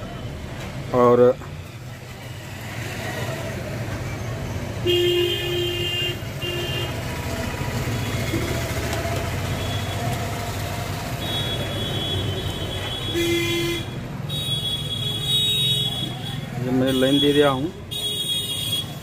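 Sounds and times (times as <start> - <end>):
traffic rumble: 0.0 - 19.0
vehicle horns honking: 4.8 - 7.0, 11.1 - 19.0.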